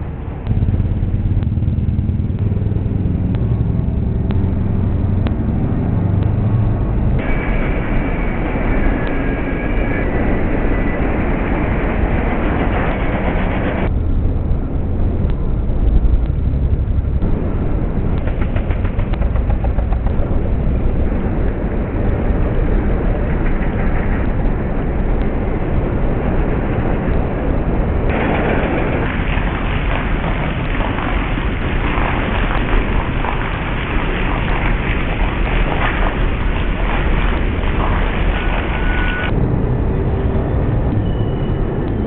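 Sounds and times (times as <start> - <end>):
road traffic: 0.0 - 42.0.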